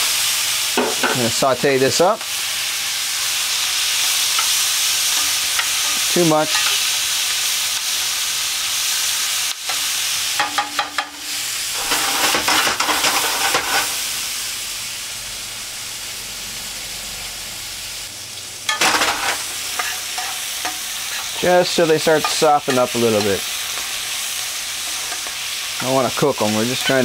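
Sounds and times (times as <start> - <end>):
vegetables sizzling in hot oil: 0.0 - 27.0
utensil stirring in pan: 3.5 - 8.0, 18.7 - 27.0.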